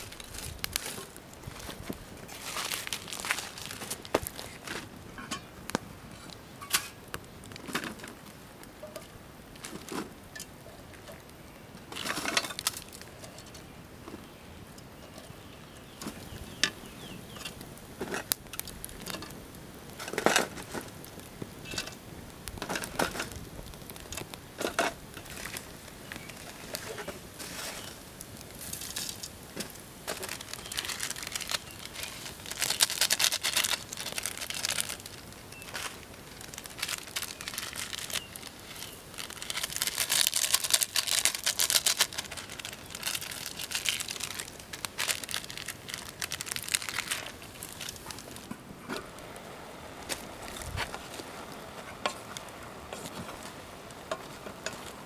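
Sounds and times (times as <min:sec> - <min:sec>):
plastic packets crinkling and tearing: 0:00.0 - 0:05.0, 0:12.0 - 0:13.7, 0:22.6 - 0:49.4, 0:50.0 - 0:55.0.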